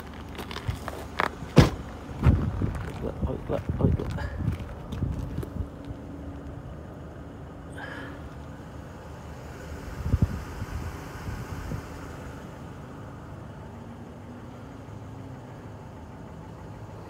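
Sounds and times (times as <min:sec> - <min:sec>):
short thump: 0:01.5 - 0:02.5
motor humming: 0:07.8 - 0:13.2.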